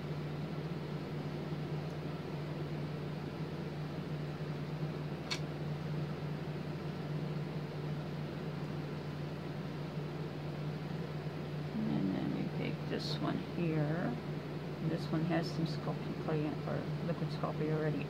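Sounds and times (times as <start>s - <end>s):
machinery hum with hiss: 0.0s - 18.0s
small click: 5.2s - 5.5s.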